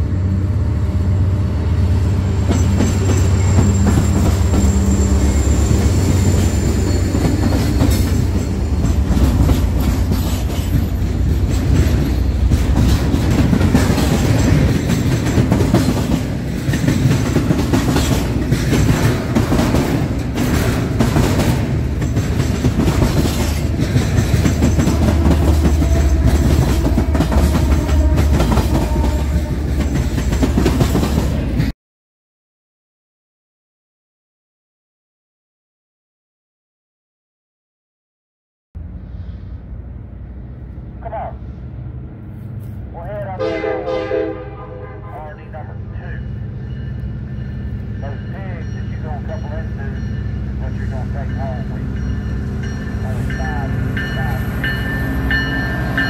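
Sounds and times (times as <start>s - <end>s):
diesel locomotive engines rumbling: 0.0s - 31.7s, 38.8s - 56.0s
train wheels clattering over rail joints: 2.4s - 4.8s, 5.8s - 31.4s.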